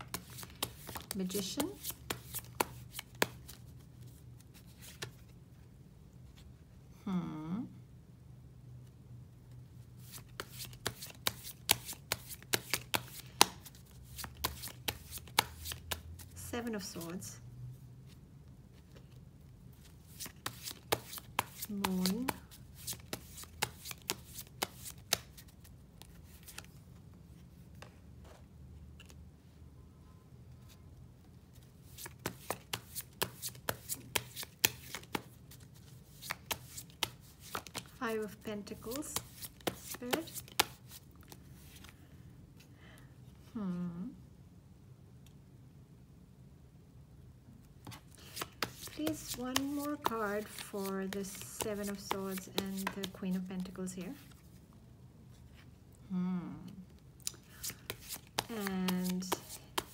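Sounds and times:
cards being shuffled: 0.0s - 5.4s, 10.0s - 17.0s, 19.8s - 26.8s, 31.8s - 42.0s, 47.8s - 54.6s, 57.2s - 59.9s.

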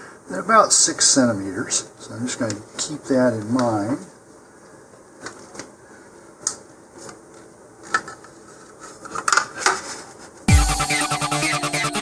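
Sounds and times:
hands handling plastic and tube: 4.6s - 5.8s, 6.4s - 10.5s.

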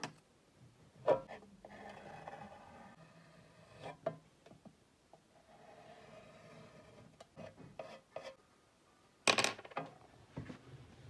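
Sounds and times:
pencil scratching on surface: 1.3s - 4.0s, 5.4s - 8.4s.

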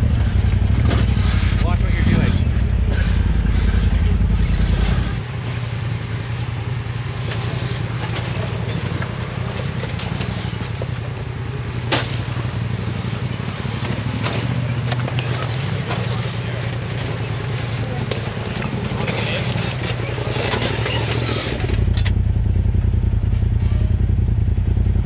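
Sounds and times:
utv engine rumbling: 0.0s - 25.0s.

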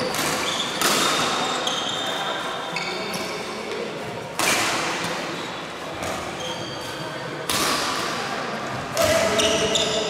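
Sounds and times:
racket hitting shuttlecock: 0.0s - 1.5s, 4.3s - 5.3s, 7.4s - 8.3s.

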